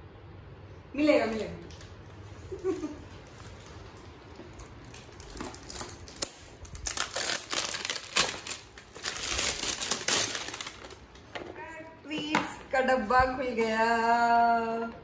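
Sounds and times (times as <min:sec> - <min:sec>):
plastic packaging crinkling: 0:02.6 - 0:11.5.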